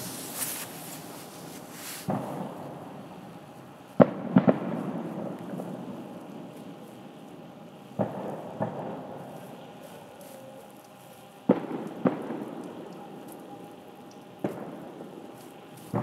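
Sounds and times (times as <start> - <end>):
fireworks bangs with rolling echo: 0.0 - 6.9, 7.9 - 9.6, 11.4 - 13.6, 14.3 - 16.0.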